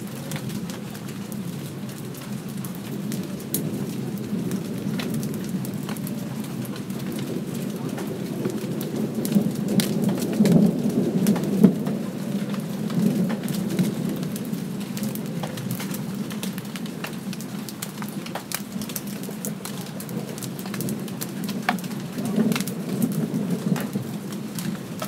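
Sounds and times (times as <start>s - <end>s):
light rain falling: 0.0s - 25.0s
raindrops striking close by: 0.0s - 25.0s
distant thunder rumbling: 3.0s - 17.0s, 20.0s - 25.0s.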